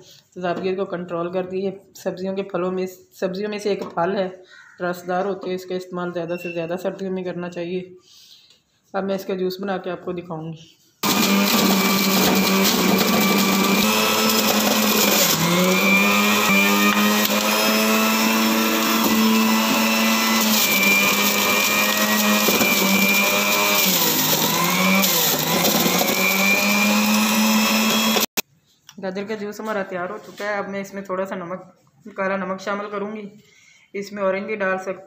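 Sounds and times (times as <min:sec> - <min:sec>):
carrots being shredded: 0:11.0 - 0:28.2
juicer motor humming: 0:11.0 - 0:28.3.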